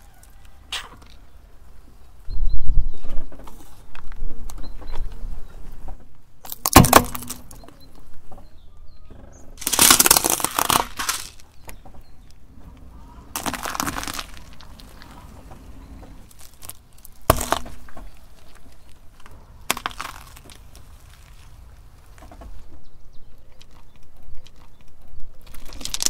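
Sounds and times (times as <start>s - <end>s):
tyre crushing small objects: 6.4s - 7.8s, 9.6s - 26.0s.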